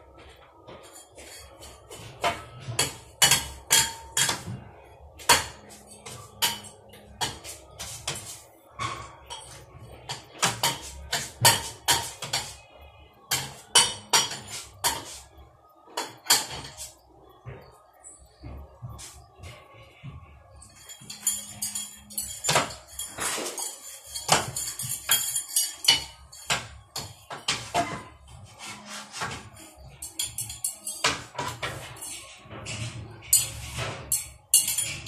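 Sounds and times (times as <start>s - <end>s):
glass shades knocking and clinking: 20.6s - 28.4s, 29.2s - 35.0s.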